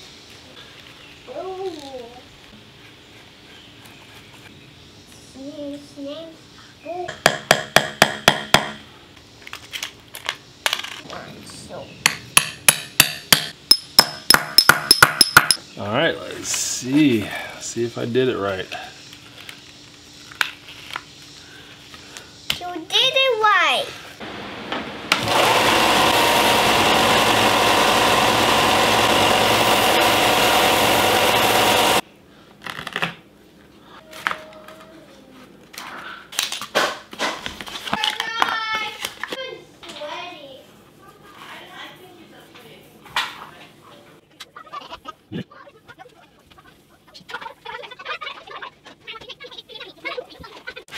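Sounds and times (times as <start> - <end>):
hammer tapping rivet setter: 12.1 - 15.6
small electric motor running: 25.2 - 32.0.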